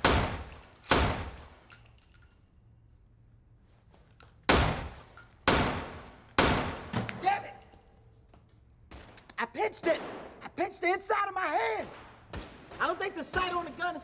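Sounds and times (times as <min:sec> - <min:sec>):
pistol shots echoing indoors: 0:00.0 - 0:01.9, 0:04.4 - 0:07.2, 0:09.8 - 0:10.6, 0:11.6 - 0:14.0.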